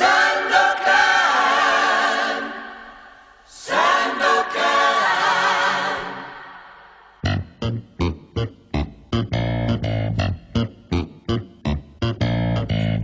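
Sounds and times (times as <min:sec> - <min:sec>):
choir singing a cappella: 0:00.0 - 0:07.2.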